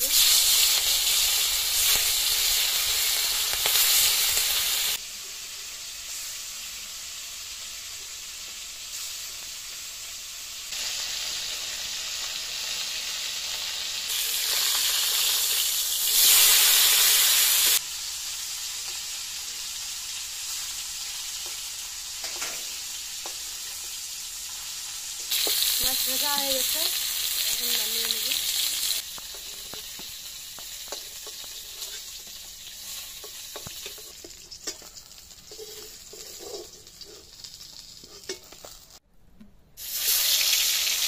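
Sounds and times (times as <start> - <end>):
fish frying in hot oil: 0.0 - 39.0, 39.8 - 41.0.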